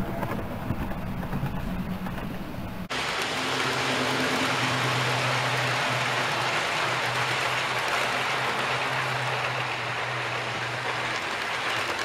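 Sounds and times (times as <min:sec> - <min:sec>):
model train wheels rattling: 0:02.9 - 0:12.0.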